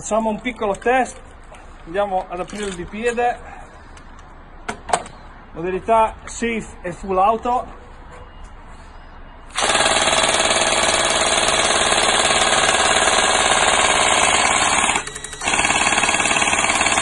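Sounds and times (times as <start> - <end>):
airsoft gun firing full auto: 9.6 - 17.0.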